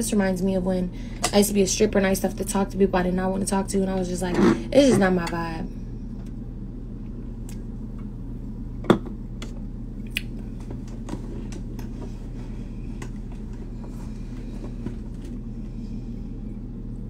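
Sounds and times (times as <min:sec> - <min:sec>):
low steady hum: 0:00.0 - 0:17.0
swallowing and mouth clicks: 0:10.0 - 0:10.4.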